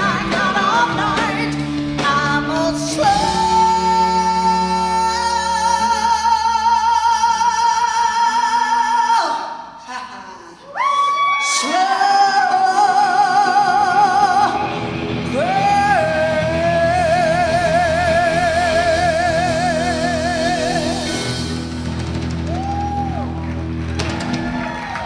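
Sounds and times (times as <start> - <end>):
electric blues band: 0.0 - 7.6, 12.6 - 25.0
woman singing with vibrato: 0.0 - 21.6.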